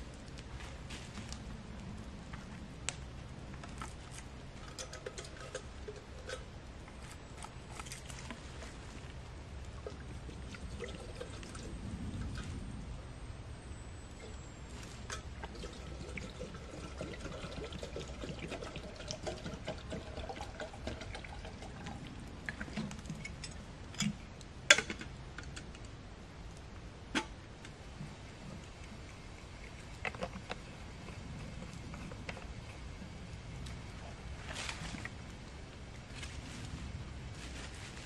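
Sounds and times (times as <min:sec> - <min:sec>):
water pouring into kettle: 0:15.5 - 0:22.0.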